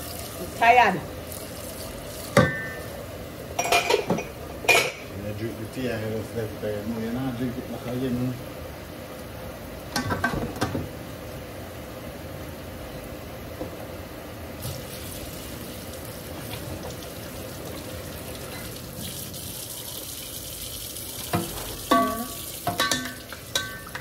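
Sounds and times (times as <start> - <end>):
food sizzling in a pan: 0.0 - 5.2, 14.6 - 24.0.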